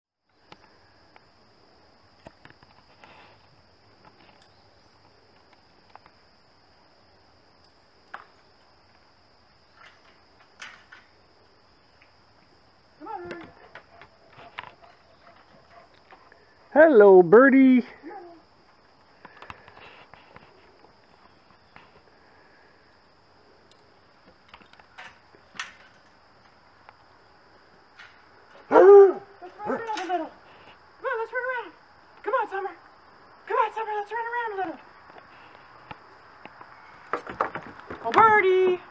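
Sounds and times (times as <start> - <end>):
faint clicks and rustles: 2.0 - 6.3, 13.2 - 16.7, 18.5 - 22.2, 23.6 - 28.7.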